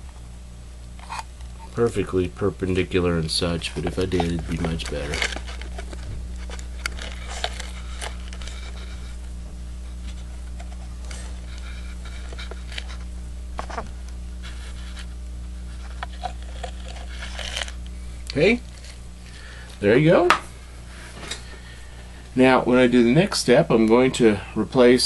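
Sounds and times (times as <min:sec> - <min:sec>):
low electrical hum: 0:00.0 - 0:25.0
kaleidoscope handling scratches and taps: 0:03.4 - 0:09.2, 0:09.9 - 0:17.8.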